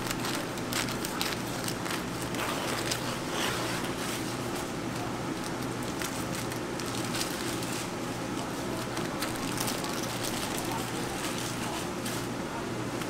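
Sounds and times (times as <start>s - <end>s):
baking paper crackling and rustling: 0.0s - 13.0s
steady low hum: 0.0s - 13.0s.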